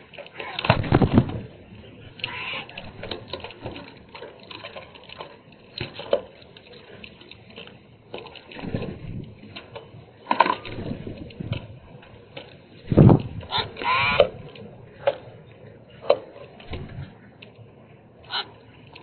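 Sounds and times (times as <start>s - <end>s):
water sloshing: 0.0s - 19.0s
bird wings flapping: 0.4s - 1.6s, 2.2s - 6.0s, 8.5s - 9.3s, 10.3s - 14.6s.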